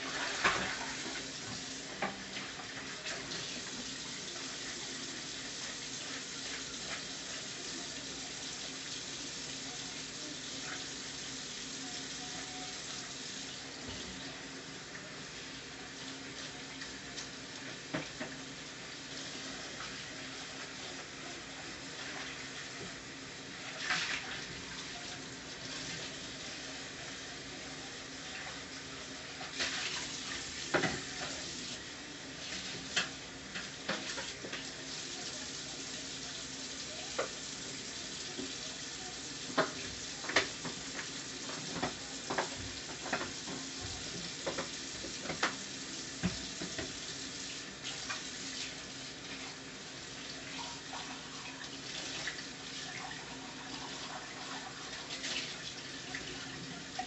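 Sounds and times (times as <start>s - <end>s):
sharp clicks of frying: 32.7s - 35.0s, 39.2s - 48.8s.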